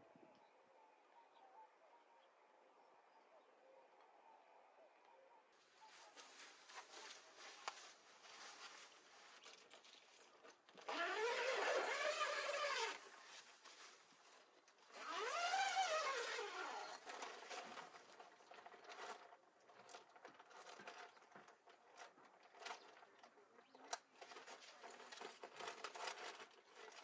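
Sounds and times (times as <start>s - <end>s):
faint clicks and rustling: 5.8s - 27.0s.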